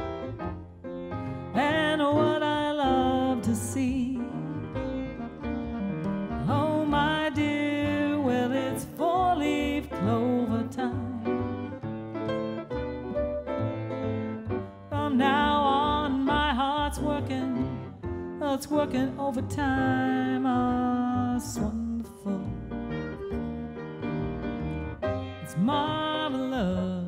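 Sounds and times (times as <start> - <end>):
wavering lead melody: 0.0 - 18.0
piano: 0.0 - 27.0
upright bass: 0.0 - 27.0.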